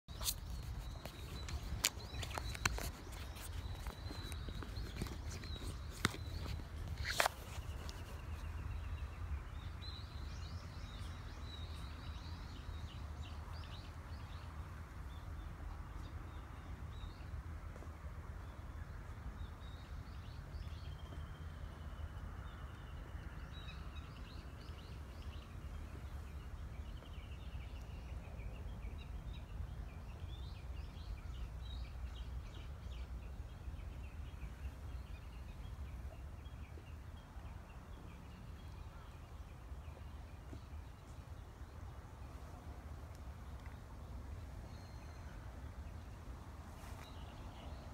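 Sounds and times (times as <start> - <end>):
small birds chirping: 0.1 - 47.9.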